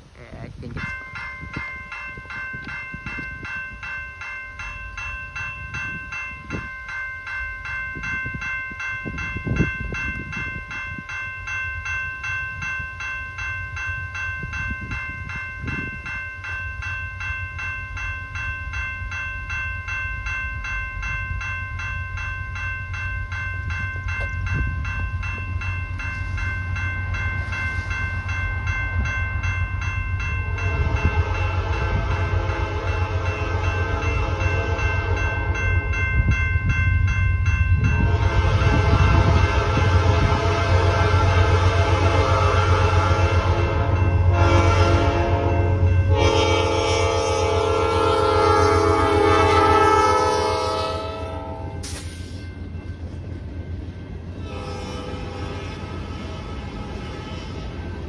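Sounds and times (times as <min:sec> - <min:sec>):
diesel locomotives rumbling: 0:00.0 - 0:58.0
electronic crossing bell ringing: 0:00.7 - 0:54.0
train horn: 0:30.6 - 0:35.2, 0:37.9 - 0:52.3, 0:54.4 - 0:57.9.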